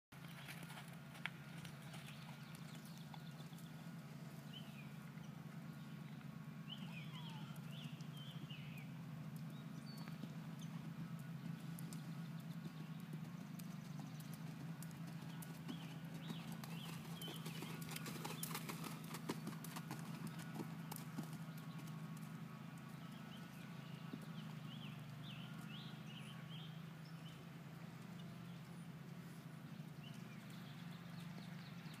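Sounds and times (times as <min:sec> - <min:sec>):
horse hoofbeats on sand: 0:00.2 - 0:03.7, 0:09.3 - 0:25.9
steady low hum: 0:00.2 - 0:32.0.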